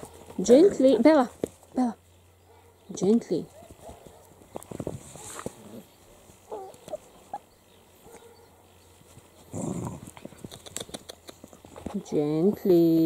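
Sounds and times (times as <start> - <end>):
puppy growling: 5.1 - 7.5, 9.4 - 11.4
puppies yelping: 5.1 - 8.6.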